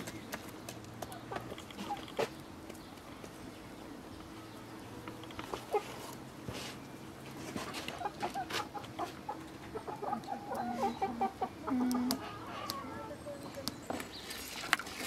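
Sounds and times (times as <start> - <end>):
chickens clucking: 0.0 - 2.8, 4.6 - 6.7, 7.3 - 14.0.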